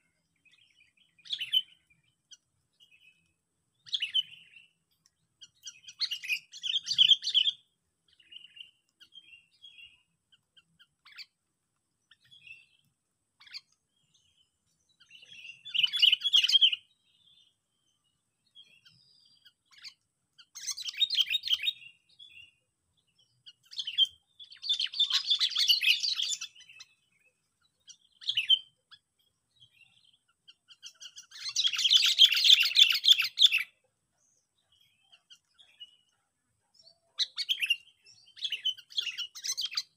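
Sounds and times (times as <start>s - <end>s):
bird chattering chirps: 18.8s - 22.4s, 23.4s - 27.1s, 27.8s - 29.0s, 29.8s - 33.8s, 36.8s - 39.9s.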